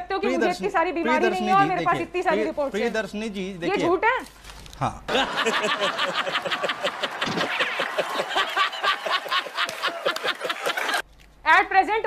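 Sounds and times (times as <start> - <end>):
men laughing heartily: 5.1 - 11.0.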